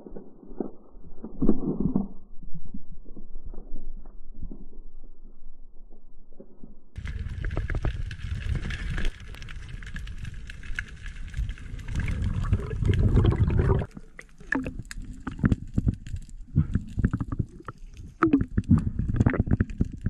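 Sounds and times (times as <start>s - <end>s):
muffled underwater rushing: 7.0s - 20.0s.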